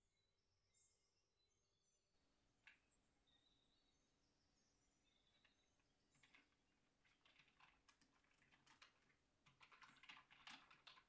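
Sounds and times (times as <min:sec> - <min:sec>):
typing on computer keyboard: 0:07.1 - 0:11.0.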